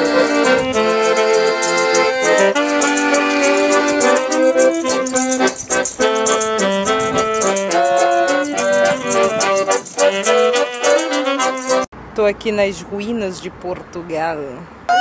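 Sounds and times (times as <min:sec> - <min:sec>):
tambourine beat: 0:00.0 - 0:11.8
accordion: 0:00.0 - 0:11.9
saxophone: 0:00.0 - 0:11.9.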